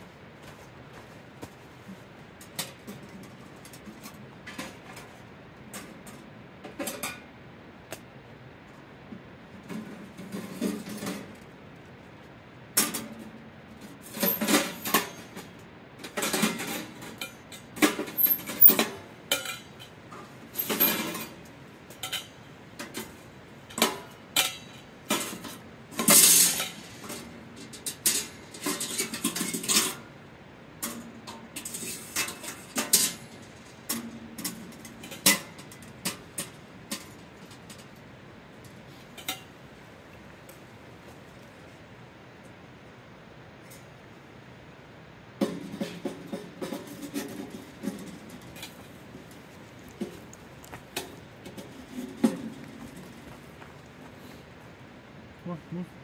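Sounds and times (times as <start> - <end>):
metal pipes clinking and scraping: 14.0 - 30.1, 30.8 - 38.0, 39.2 - 39.5.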